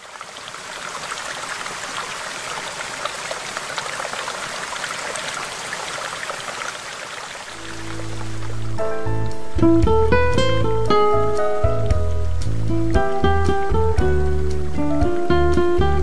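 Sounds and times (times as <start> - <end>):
waterfall splashing: 0.0 - 14.5.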